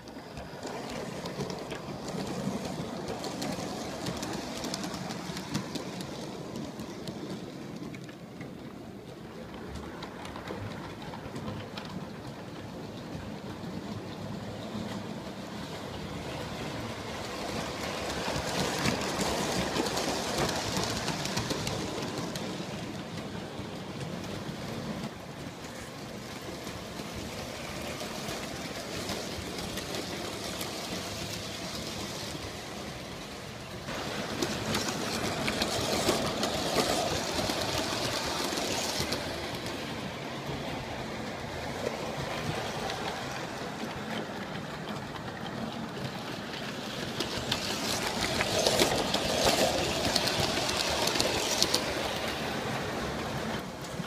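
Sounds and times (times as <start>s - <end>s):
model train rumbling on track: 0.0s - 54.0s.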